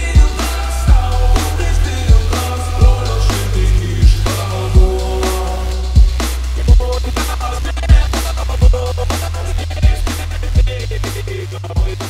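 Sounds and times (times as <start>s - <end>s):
drum and bass track: 0.0s - 12.0s.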